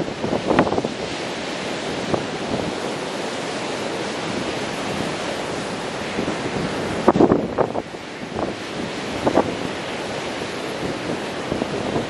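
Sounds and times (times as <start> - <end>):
ocean surf breaking: 0.0 - 12.0
wind gusts on microphone: 0.0 - 12.0.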